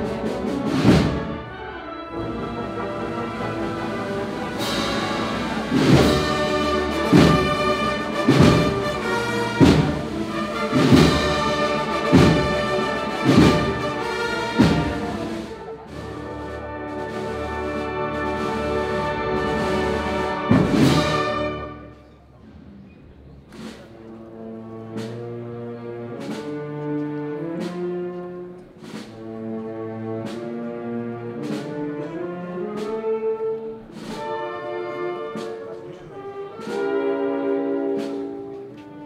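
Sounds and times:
band playing processional march: 0.0 - 22.0, 23.6 - 39.0
percussion crash: 4.2 - 15.6.

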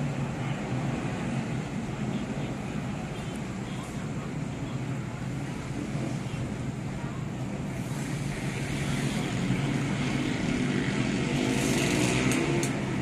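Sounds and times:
distant motorcycles revving: 7.8 - 13.0.

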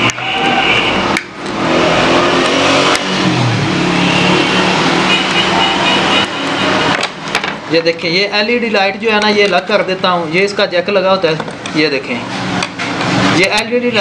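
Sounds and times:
vehicle engine revving: 0.0 - 7.3, 12.2 - 13.7
traffic noise: 0.0 - 14.0.

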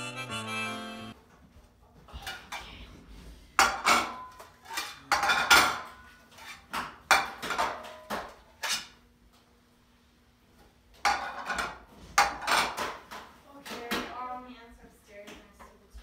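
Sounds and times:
plates clattering on a table: 3.6 - 9.0, 11.0 - 14.1.

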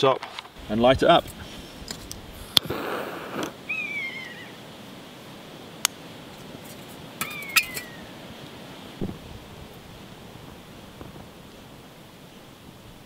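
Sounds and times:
high falling animal calls: 2.6 - 4.7, 7.2 - 8.2.

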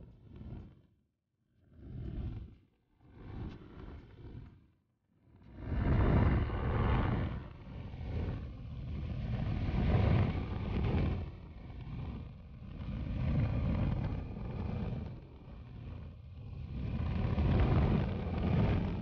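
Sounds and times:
light aircraft engine: 1.6 - 4.6, 5.3 - 19.0
wind noise on microphone: 5.5 - 19.0.

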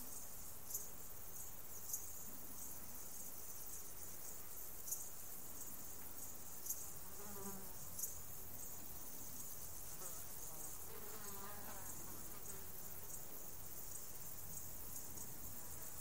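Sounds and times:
insect chorus: 0.0 - 16.0
sharp insect chirps: 0.0 - 16.0
flying insect buzzing past: 7.1 - 7.8, 9.3 - 14.0.

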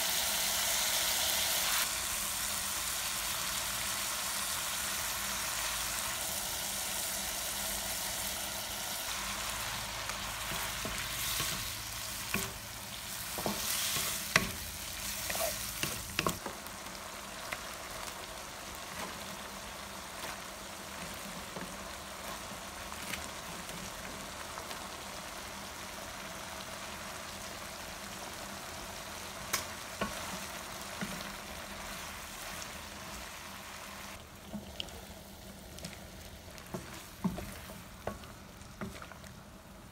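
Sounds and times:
seafood sizzling in a hot pan: 0.0 - 39.9
wooden spatula scraping a pan: 36.6 - 39.2.

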